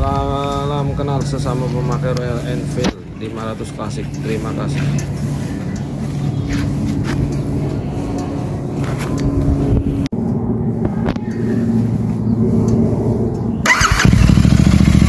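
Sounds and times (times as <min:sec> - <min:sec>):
motorcycle engine idling: 0:13.6 - 0:15.0.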